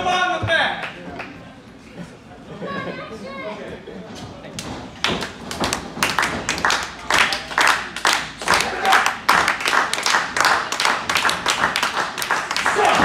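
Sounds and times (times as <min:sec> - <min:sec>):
small crowd clapping: 0:00.8 - 0:01.4, 0:04.6 - 0:13.0.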